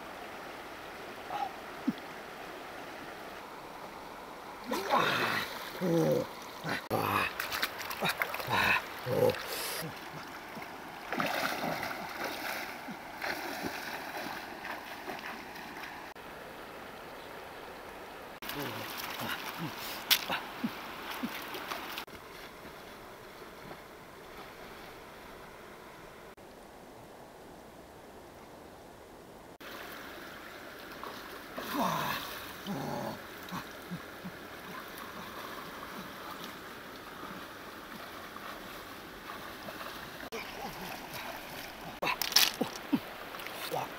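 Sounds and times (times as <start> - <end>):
stream rushing: 0.0 - 27.2, 29.4 - 43.9
water splashing: 3.3 - 16.2, 18.4 - 22.5, 29.6 - 43.9.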